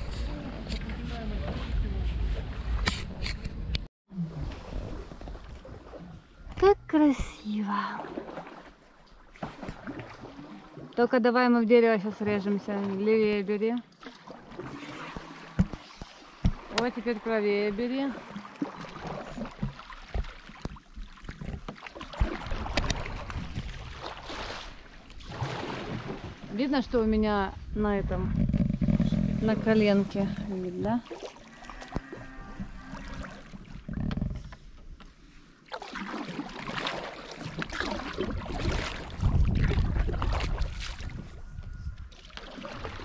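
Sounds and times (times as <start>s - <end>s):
low microphone rumble: 0.0s - 5.2s, 26.9s - 30.6s
canoe paddle splashing in water: 7.8s - 11.0s, 12.2s - 26.6s, 28.9s - 41.3s, 42.1s - 43.0s.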